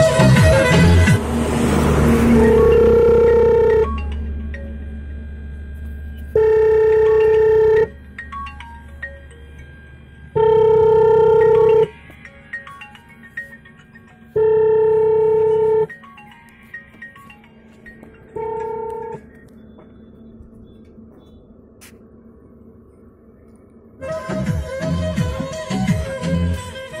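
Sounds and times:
plinking melody notes: 2.2s - 5.0s
electronic held note: 2.3s - 8.0s.

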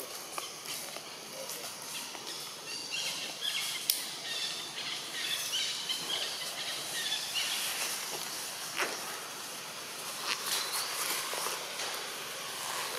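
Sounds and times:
small birds chirping: 0.0s - 12.9s
steady high hiss: 0.0s - 12.9s.

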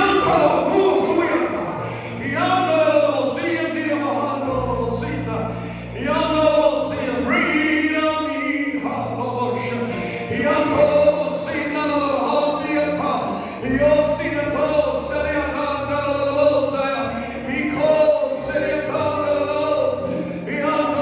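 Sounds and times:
voices singing gospel song: 0.0s - 21.0s.

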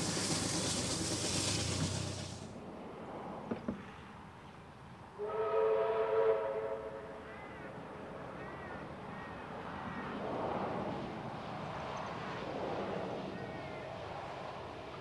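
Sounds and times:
faint locomotive engine rumble: 0.0s - 15.0s
steam locomotive whistle: 5.2s - 7.2s.

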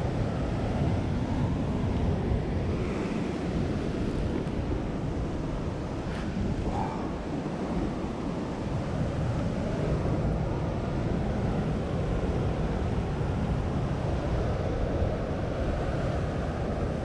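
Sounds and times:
ocean surf rushing: 0.0s - 17.0s
wind buffeting microphone: 0.0s - 17.0s.

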